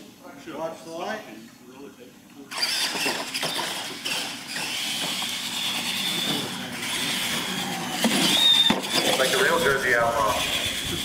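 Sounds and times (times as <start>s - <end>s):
electric motors whining: 2.4s - 11.0s
tyre noise on concrete: 2.8s - 9.4s.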